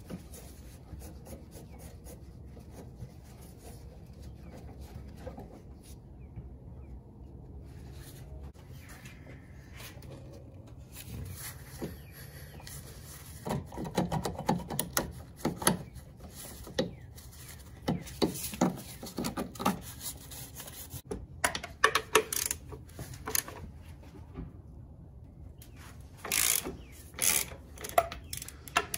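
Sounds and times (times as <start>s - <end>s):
tools clicking and knocking on metal: 13.4s - 15.9s, 21.0s - 23.6s, 26.2s - 28.9s.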